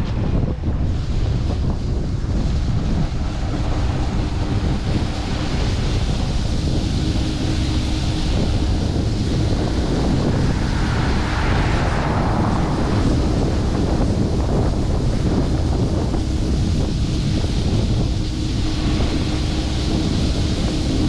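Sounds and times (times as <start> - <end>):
wind buffeting the microphone: 0.0 - 21.0.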